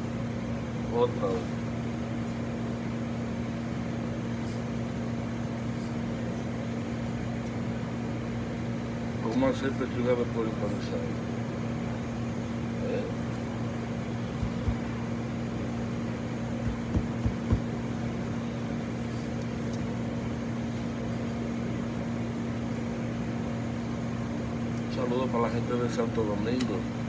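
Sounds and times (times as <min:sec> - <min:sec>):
low machine hum: 0:00.0 - 0:27.0
soft low thumps: 0:14.4 - 0:14.9, 0:16.6 - 0:17.7.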